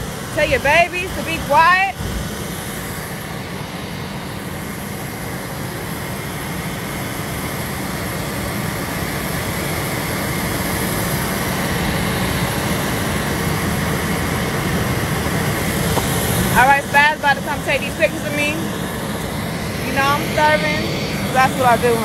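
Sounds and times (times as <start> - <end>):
faint high whine: 0.0 - 22.0
jet engines roaring: 0.0 - 22.0.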